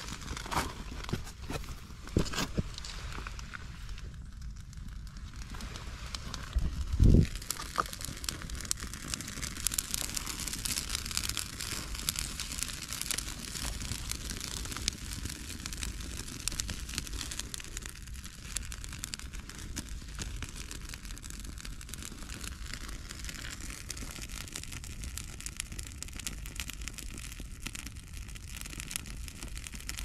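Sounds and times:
twigs rustling: 0.0s - 4.0s, 5.3s - 15.3s
campfire crackling: 0.0s - 30.0s.

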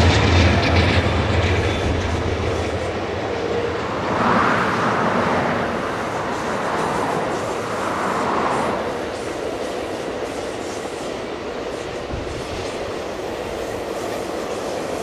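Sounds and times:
train cars rumbling past: 0.0s - 15.0s.

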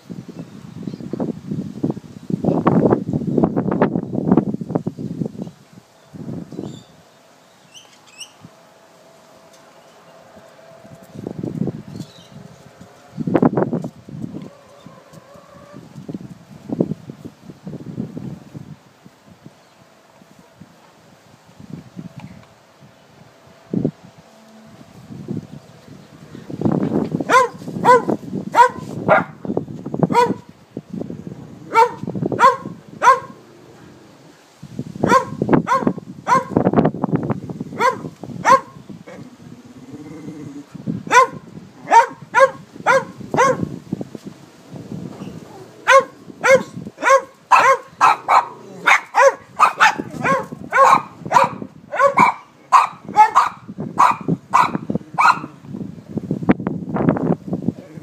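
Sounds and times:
small dogs yapping: 27.3s - 29.3s, 45.2s - 55.6s.

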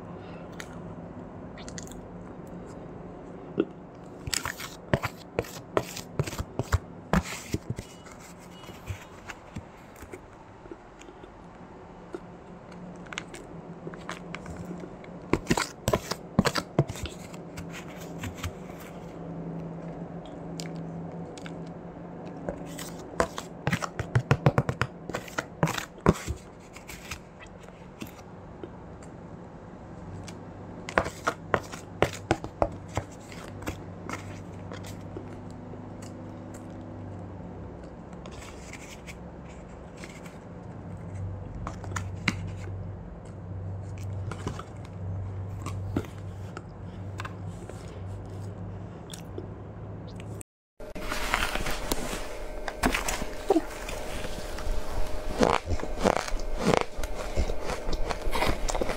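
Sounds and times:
low steady hum: 0.0s - 58.9s
ice crunching in mouth: 52.8s - 58.9s.

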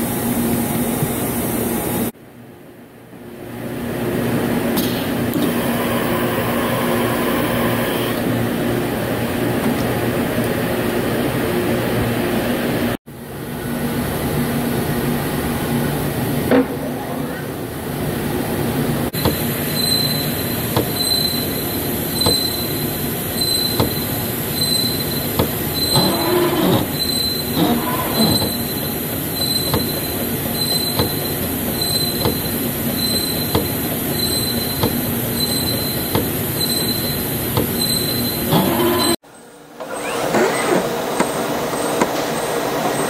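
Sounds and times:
machining noise: 19.2s - 32.3s
pulsing high squeal: 19.6s - 32.2s, 33.0s - 33.5s, 34.1s - 37.2s, 37.8s - 39.2s.

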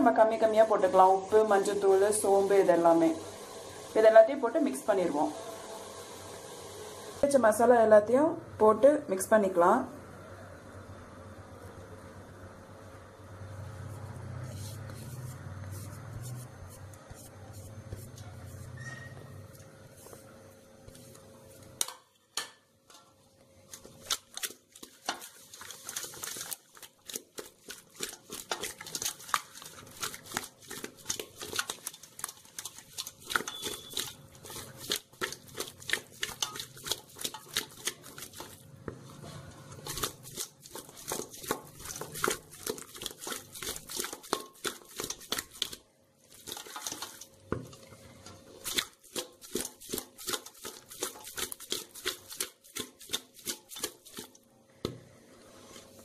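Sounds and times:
fish mixed by hand in dish: 13.6s - 22.0s, 23.0s - 56.0s.

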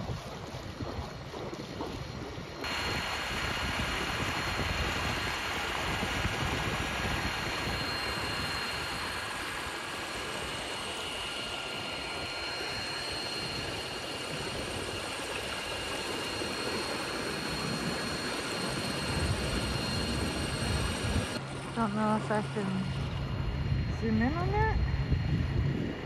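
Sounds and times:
outboard motor drone: 0.0s - 26.0s
wind and water rushing: 0.0s - 26.0s.

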